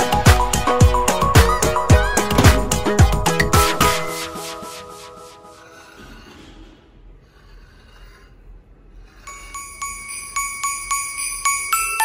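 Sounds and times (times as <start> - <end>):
background music: 0.0 - 6.0
jingling bells: 9.4 - 12.0.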